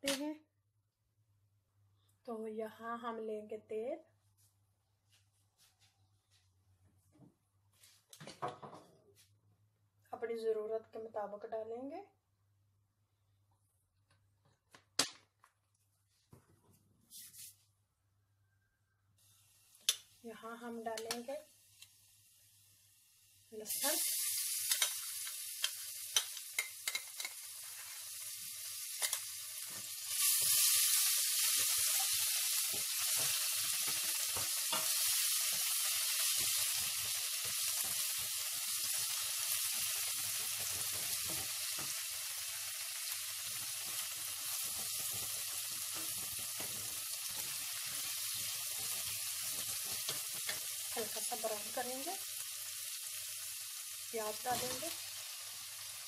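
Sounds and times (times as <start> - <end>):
garlic sizzling in hot oil: 19.2 - 56.0
spoon knocking and scraping pot: 26.2 - 27.4.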